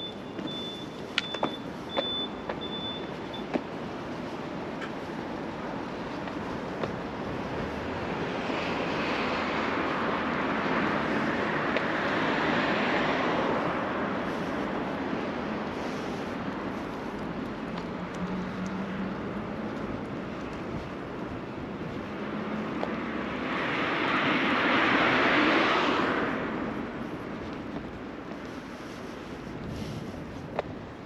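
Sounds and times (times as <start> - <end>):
street traffic noise: 0.0 - 31.0
vehicle passing by: 22.0 - 27.2.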